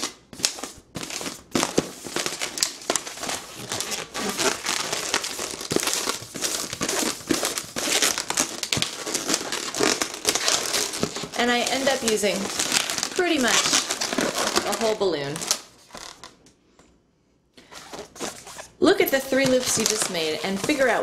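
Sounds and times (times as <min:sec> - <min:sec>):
balloon rubbing and squeaking: 0:02.0 - 0:15.0.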